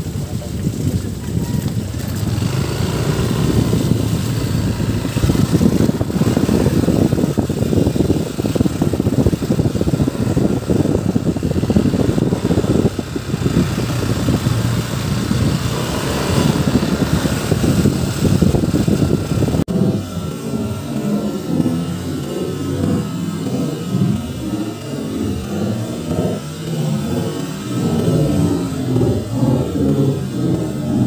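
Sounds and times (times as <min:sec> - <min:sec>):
motorcycle engine rumbling: 0:00.0 - 0:31.0.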